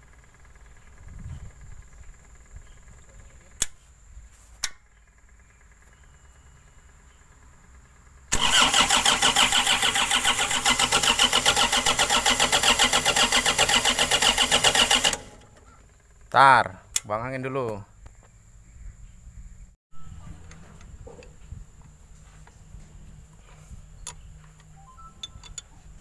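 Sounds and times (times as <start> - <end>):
starter cranking diesel engine: 8.2 - 16.3.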